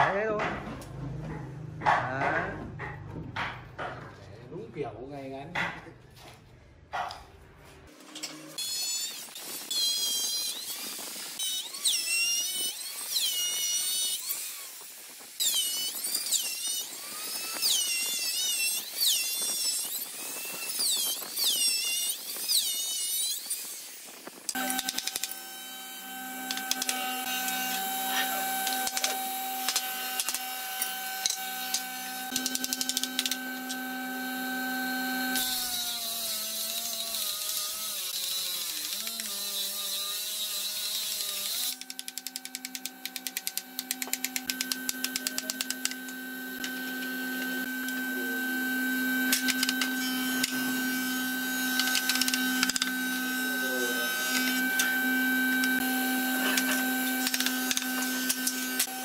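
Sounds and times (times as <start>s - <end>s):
wooden boards knocking: 0.0s - 4.2s
workshop machine humming: 24.5s - 37.3s, 41.4s - 59.0s.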